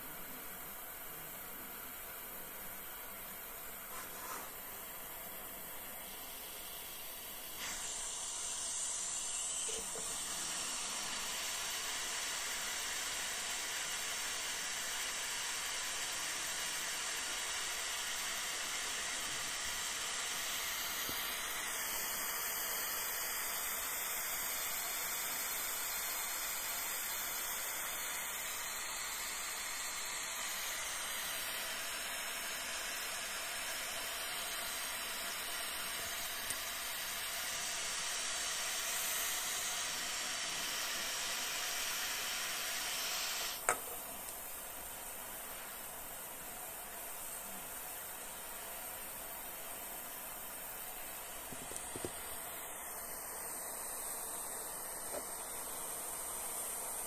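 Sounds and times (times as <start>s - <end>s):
gas torch hissing: 0.0s - 57.0s.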